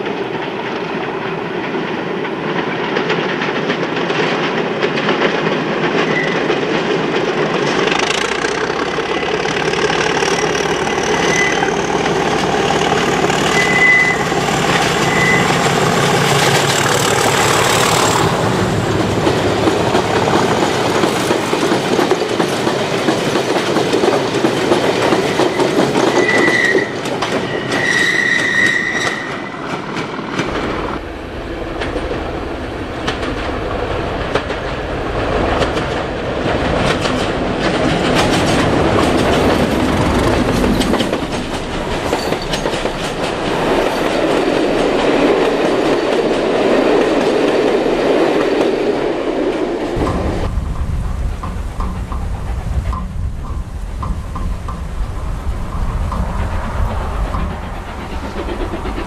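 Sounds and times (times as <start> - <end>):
diesel locomotive passing: 0.0 - 59.0
wagons clacking over rail joints: 0.0 - 59.0
wheels squealing: 8.1 - 18.7, 25.3 - 29.7, 38.2 - 44.8.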